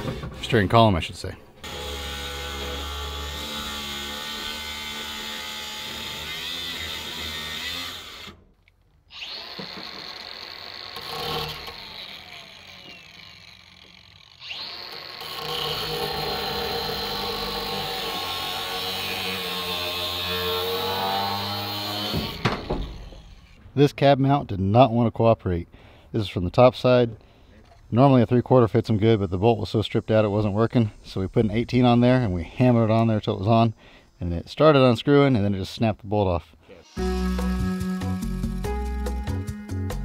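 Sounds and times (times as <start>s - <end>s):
angle grinder cutting steel: 1.6s - 8.4s, 9.1s - 23.6s.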